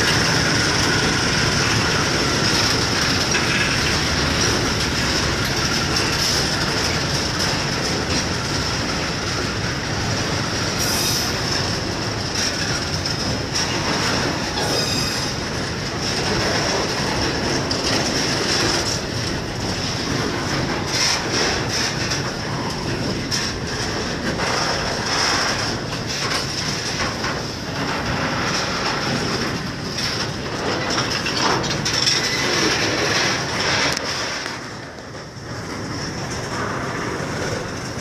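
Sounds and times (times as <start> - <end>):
train wheels rumbling: 0.0 - 38.0
wheels clacking over rail joints: 0.0 - 38.0
high-pitched wheel squeal: 14.6 - 15.4.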